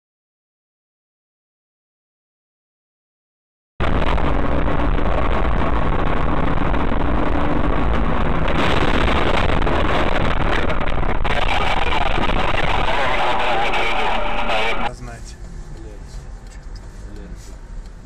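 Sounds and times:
car road and engine noise: 3.8s - 18.0s.

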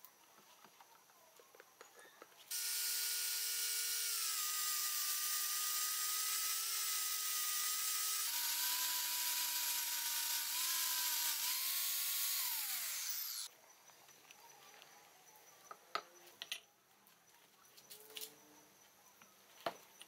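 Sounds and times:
angle grinder polishing metal: 2.5s - 13.5s.

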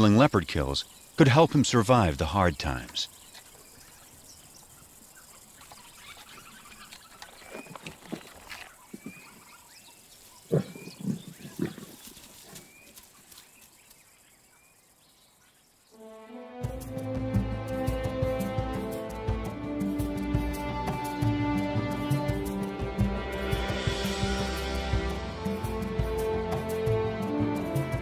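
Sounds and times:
birds chirping: 0.0s - 16.0s
big cat grunting: 10.5s - 12.0s
music: 16.0s - 28.0s.

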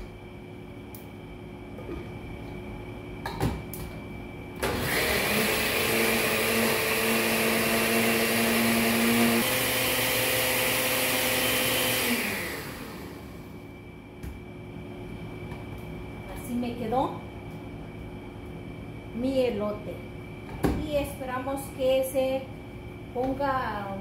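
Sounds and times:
blender motor running: 4.6s - 13.5s.

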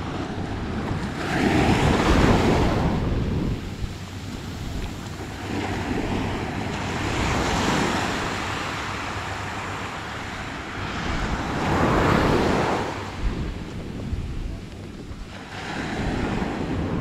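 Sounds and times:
small waves breaking on sand: 0.0s - 17.0s
wind rumbling on microphone: 0.0s - 17.0s.

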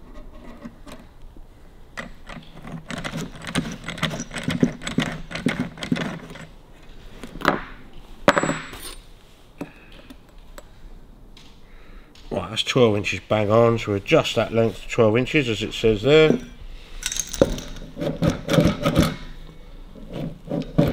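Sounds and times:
sharp metallic clinks: 16.4s - 17.8s.

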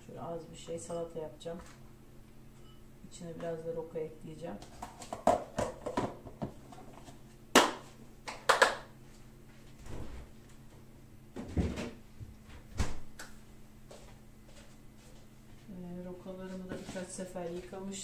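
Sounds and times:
faint steady hum: 0.0s - 18.0s
kitchen knocks and clatters: 4.6s - 7.1s, 11.4s - 12.0s.

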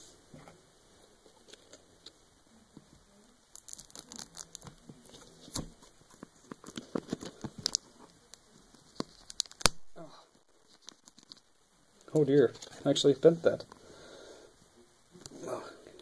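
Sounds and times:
plastic wrap crinkling: 3.4s - 13.6s.

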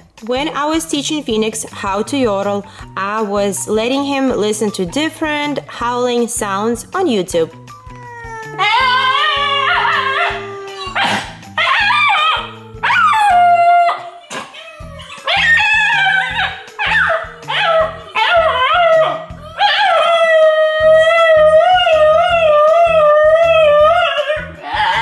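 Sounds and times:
background music: 0.0s - 25.0s
dog howling: 7.9s - 25.0s
dog howls from a phone: 7.9s - 25.0s.

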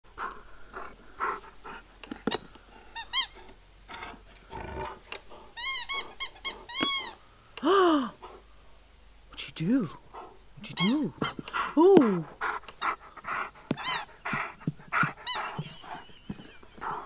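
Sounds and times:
dog whining and yelping: 3.0s - 4.1s, 5.6s - 7.2s, 10.8s - 11.4s, 12.1s - 17.0s.

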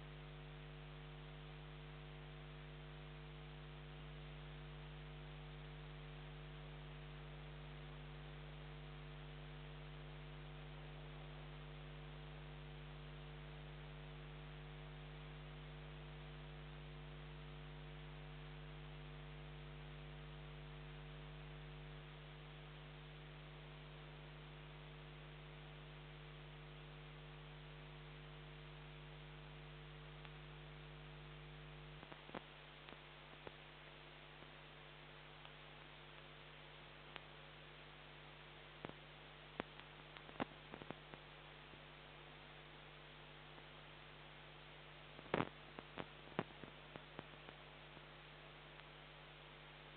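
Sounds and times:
electrical mains hum with hiss: 0.0s - 49.9s
faint clicks: 37.1s - 37.4s, 38.8s - 41.3s, 48.7s - 49.0s.

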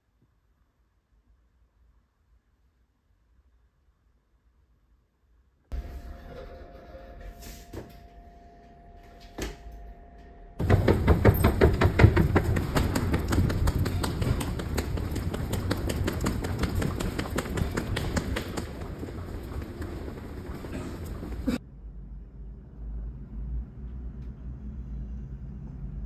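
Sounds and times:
footsteps on stone tiles: 10.6s - 21.6s.

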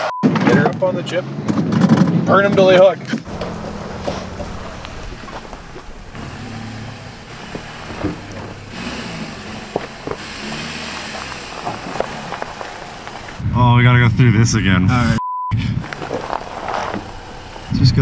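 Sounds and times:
car engines running at low speed: 3.2s - 13.4s, 15.8s - 18.0s.

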